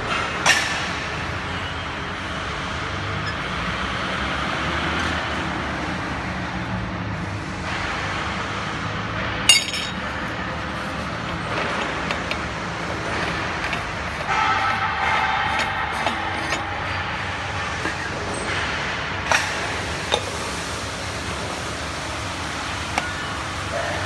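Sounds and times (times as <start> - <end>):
workshop machinery humming: 0.0 - 24.0
metallic clink of spanner: 9.5 - 10.1.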